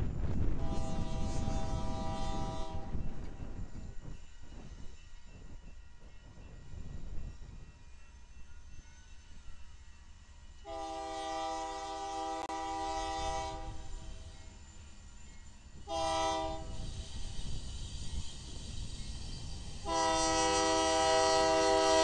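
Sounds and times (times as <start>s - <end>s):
train rumble: 0.0s - 22.0s
locomotive air horn blasts: 0.6s - 3.0s, 10.6s - 13.9s, 15.9s - 16.8s, 19.8s - 22.0s.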